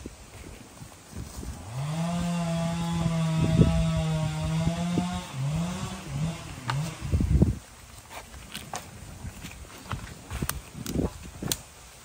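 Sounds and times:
chainsaw revving: 1.6s - 7.4s.

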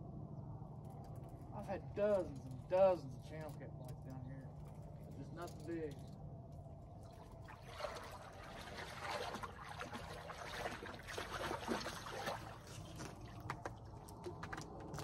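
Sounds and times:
water splashing and trickling: 6.9s - 15.0s
fish thrashing at water surface: 7.0s - 13.5s.

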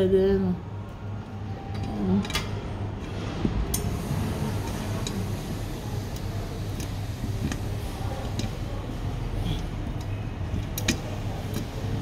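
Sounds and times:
steady low hum: 0.0s - 12.0s
metal clicks and taps: 6.2s - 8.6s, 9.6s - 11.8s.

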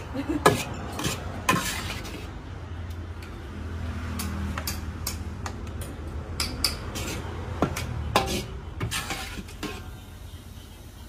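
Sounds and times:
metal ladle scraping a wok: 0.0s - 2.4s, 6.6s - 10.8s.

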